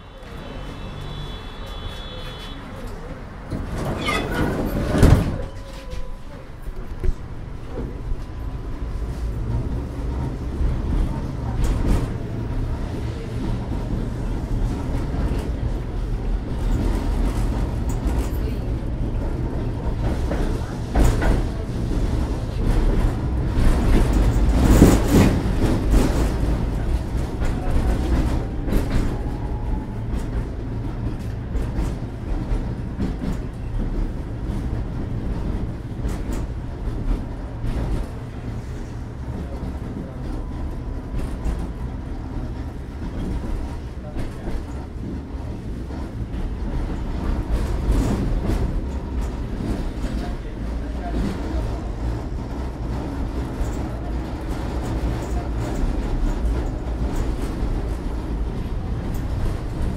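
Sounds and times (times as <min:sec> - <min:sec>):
tram wheels rumbling: 0:00.0 - 0:59.9.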